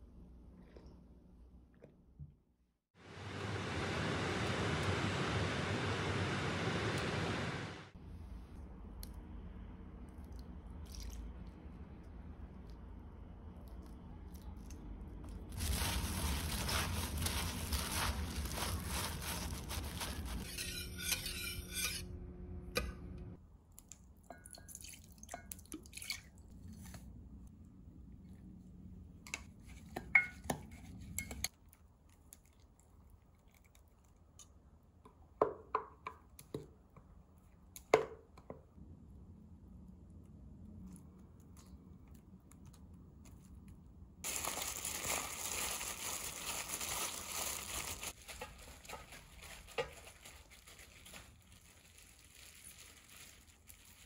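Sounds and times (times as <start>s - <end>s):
squishing in seasoning paste: 9.9s - 21.5s, 30.6s - 35.0s, 40.2s - 54.0s
gloved hands rustling onions: 15.5s - 20.5s, 44.2s - 54.0s.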